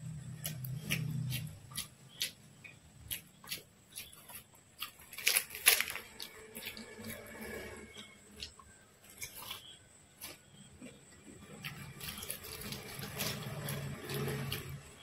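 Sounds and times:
wet chewing: 0.2s - 15.0s
fried bread tearing: 3.1s - 7.6s, 11.5s - 15.0s.

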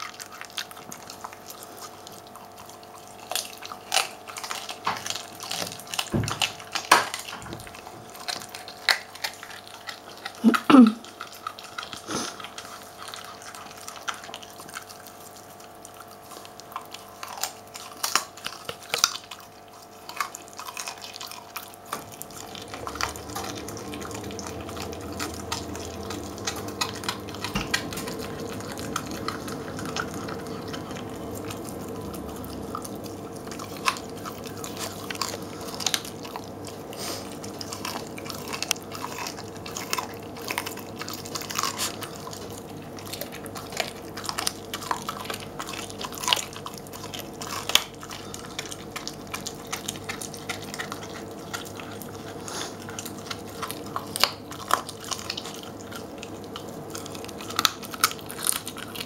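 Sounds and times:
bone crunching and cracking: 0.0s - 59.0s
dog chewing bone: 0.0s - 59.0s.

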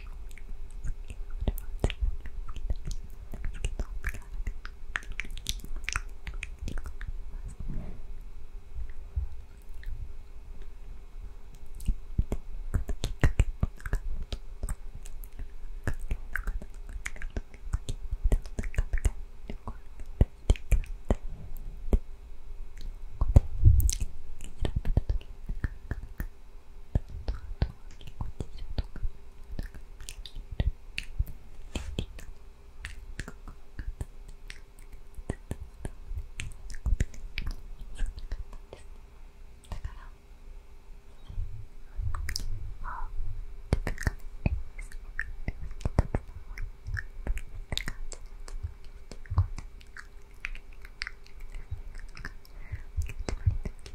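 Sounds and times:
wet mouth clicks: 0.0s - 7.1s, 11.5s - 21.2s, 22.8s - 39.0s, 39.6s - 40.1s, 42.0s - 43.1s, 43.7s - 53.9s
person whispering: 39.7s - 40.2s, 41.9s - 43.2s.

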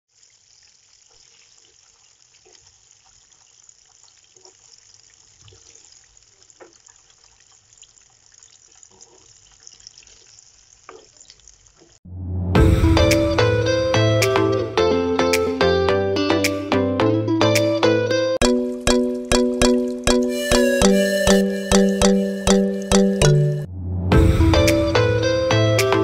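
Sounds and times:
food deep-frying in oil: 0.1s - 12.0s.

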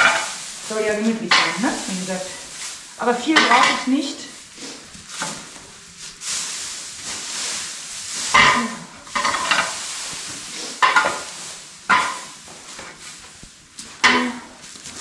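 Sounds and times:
straw rustling and crackling: 0.0s - 15.0s.

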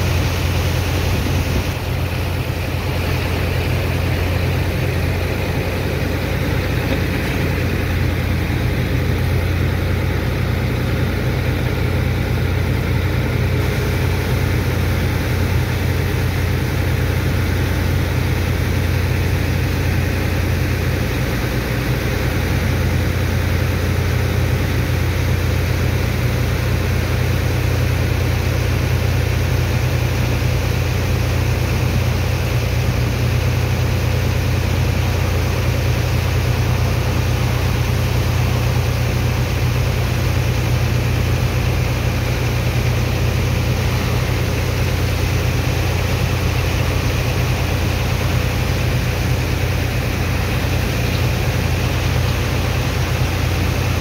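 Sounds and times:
high-pressure water jet hissing: 0.0s - 24.4s, 35.1s - 54.0s
pump engine droning: 0.0s - 54.0s.

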